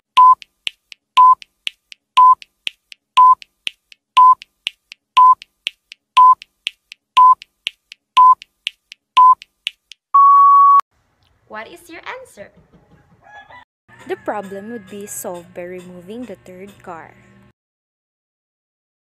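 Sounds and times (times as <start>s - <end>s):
short electronic beeps: 0.2s - 0.4s, 2.2s - 2.4s, 3.2s - 3.4s, 4.2s - 4.4s, 5.2s - 5.4s, 6.2s - 6.4s, 7.2s - 7.4s, 8.2s - 8.4s, 10.2s - 10.8s
faint timer ticks: 0.2s - 10.0s.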